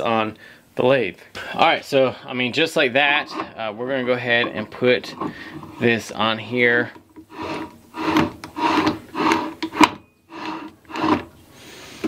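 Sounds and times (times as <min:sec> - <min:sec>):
lathe chuck scraping on thread: 0:03.1 - 0:03.7, 0:07.2 - 0:11.3.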